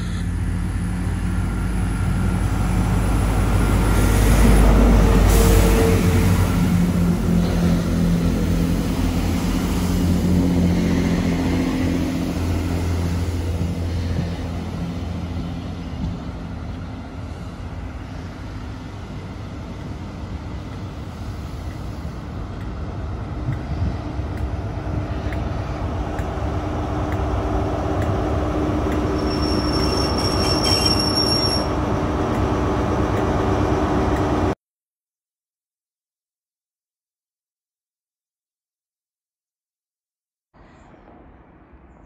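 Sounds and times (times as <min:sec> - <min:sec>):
diesel locomotive engine: 0:00.0 - 0:34.6
train wheels rumbling on rails: 0:00.0 - 0:34.6
wheel squeal: 0:29.0 - 0:31.8.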